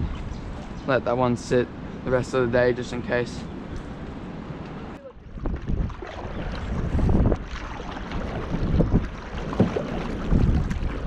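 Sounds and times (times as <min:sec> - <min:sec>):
wind buffeting microphone: 0:00.0 - 0:01.2, 0:01.9 - 0:11.0
paddle strokes and splashes: 0:05.2 - 0:11.0.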